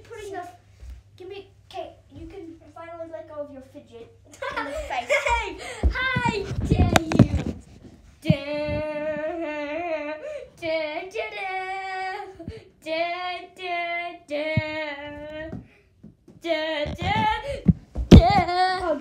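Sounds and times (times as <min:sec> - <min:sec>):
child singing: 0:08.3 - 0:15.6, 0:16.4 - 0:19.0.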